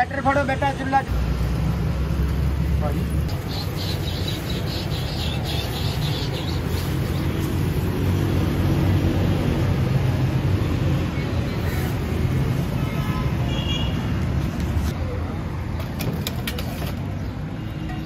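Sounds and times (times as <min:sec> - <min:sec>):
rumble of passing traffic: 0:00.0 - 0:18.0.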